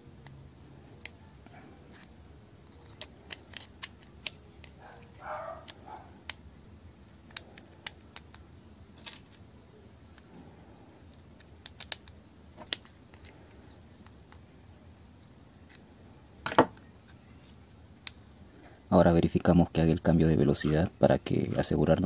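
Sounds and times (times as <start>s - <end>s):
plastic and metal parts clicking: 0.2s - 6.5s, 7.2s - 9.4s, 10.1s - 14.4s.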